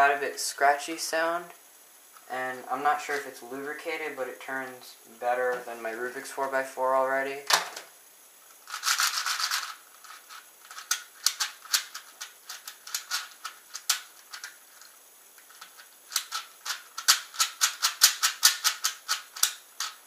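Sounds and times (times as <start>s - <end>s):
speed cube plastic clicks: 8.7s - 20.0s.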